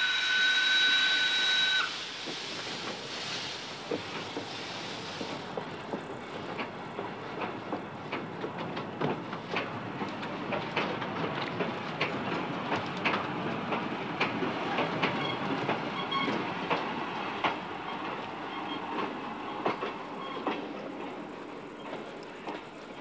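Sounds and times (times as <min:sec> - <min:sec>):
steam train whistle: 0:00.0 - 0:02.3
train clicking on rails: 0:00.0 - 0:23.0
train hiss: 0:00.0 - 0:23.0.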